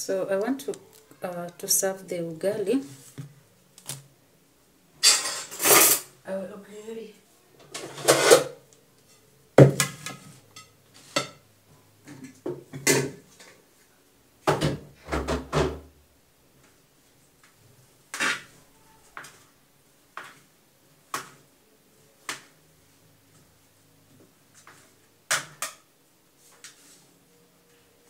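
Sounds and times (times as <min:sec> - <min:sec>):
plates and utensils clinking: 0:05.0 - 0:06.1, 0:09.9 - 0:11.4.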